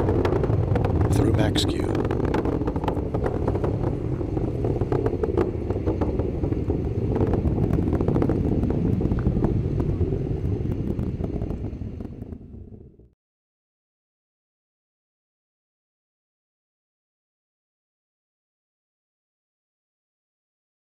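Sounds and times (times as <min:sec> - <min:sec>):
rocket engines rumbling and crackling: 0:00.0 - 0:13.2.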